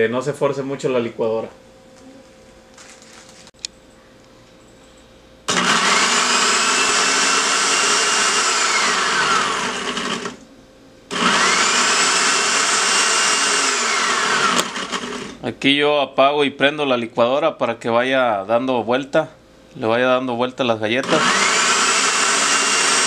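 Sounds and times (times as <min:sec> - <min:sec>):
blender grinding cookies: 0:05.5 - 0:10.4, 0:11.1 - 0:15.4, 0:21.0 - 0:23.0.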